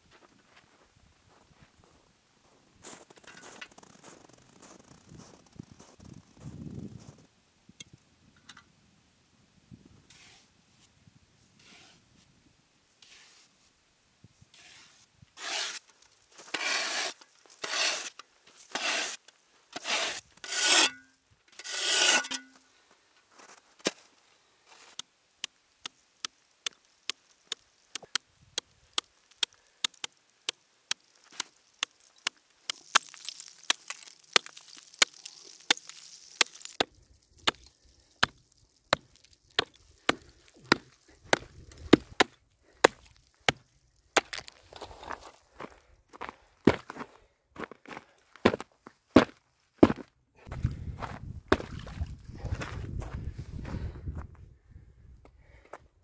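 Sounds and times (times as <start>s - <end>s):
shovel scraping snow off ice: 10.1s - 10.5s, 11.6s - 12.0s, 13.0s - 13.6s, 14.5s - 22.6s
hatchet chopping ice: 29.0s - 43.6s.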